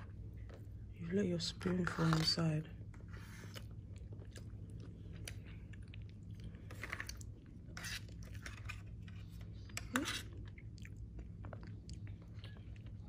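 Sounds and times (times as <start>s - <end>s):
steady low hum: 0.0s - 13.0s
chewing bread: 3.3s - 13.0s.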